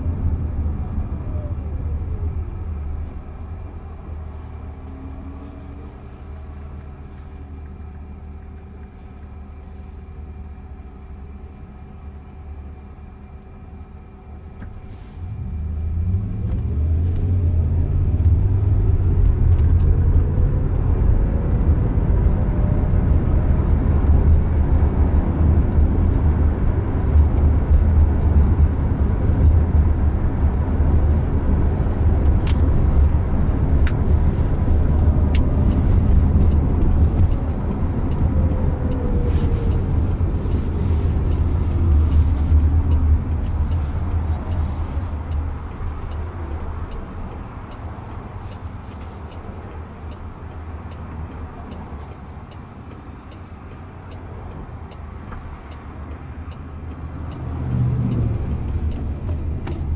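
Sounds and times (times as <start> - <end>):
tyre and road noise in car: 14.6 - 59.9
sharp ticks: 35.3 - 59.9.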